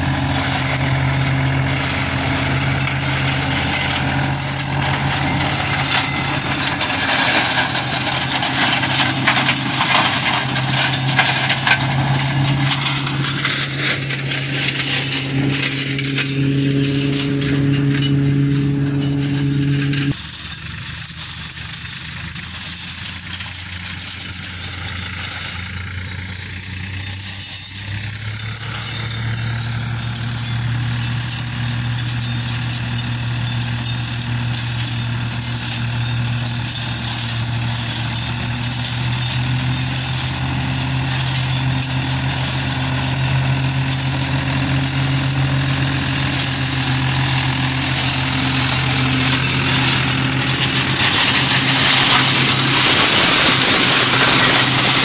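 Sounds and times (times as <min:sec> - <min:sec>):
flail mulcher shredding: 0:00.0 - 0:55.0
tractor diesel engine running: 0:00.0 - 0:55.0.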